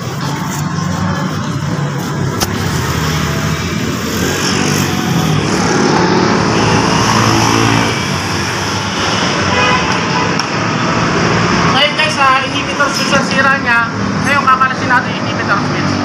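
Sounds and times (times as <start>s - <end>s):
vehicle engine running: 0.0s - 9.4s.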